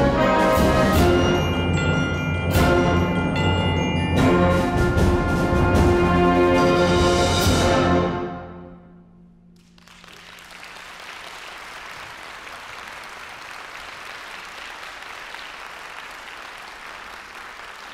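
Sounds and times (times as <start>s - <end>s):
audience applause: 9.6s - 17.9s.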